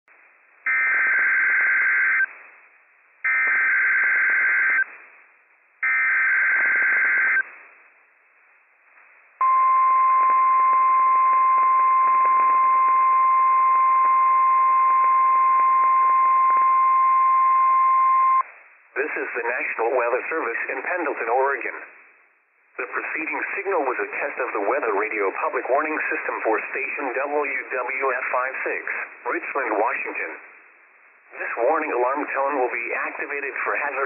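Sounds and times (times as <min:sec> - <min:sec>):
radio hiss: 0:18.4 - 0:22.2, 0:22.8 - 0:34.0.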